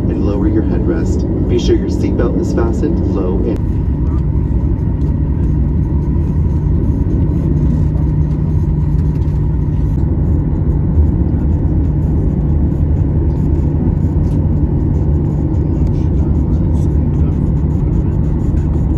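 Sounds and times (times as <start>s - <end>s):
faint steady hum: 0.0s - 18.9s
jet engine low rumble: 0.0s - 18.9s.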